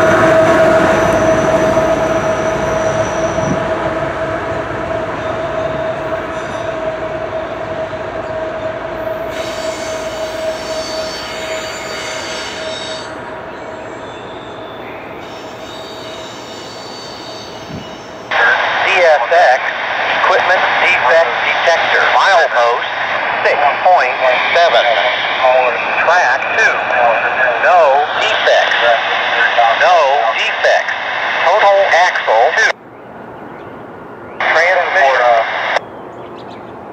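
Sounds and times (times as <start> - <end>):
freight train rolling on rails: 0.0 - 31.6
high-pitched wheel squeal: 0.1 - 3.8, 5.0 - 18.2.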